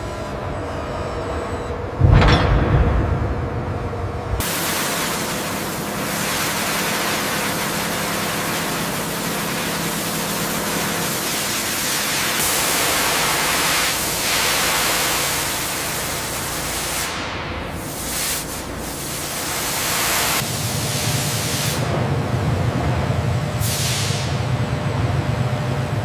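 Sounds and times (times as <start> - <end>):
sandblaster hissing on metal: 4.4 - 20.5.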